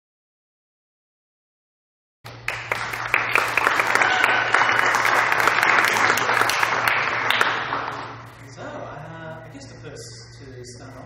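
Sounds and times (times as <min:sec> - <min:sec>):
audience applauding: 0:02.3 - 0:08.2
low steady hum: 0:02.3 - 0:11.0.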